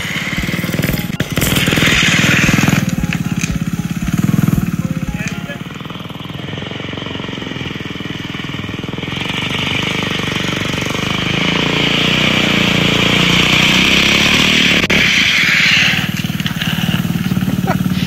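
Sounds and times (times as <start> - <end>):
lawnmower engine running: 0.0 - 18.0
broad hiss: 14.9 - 18.0.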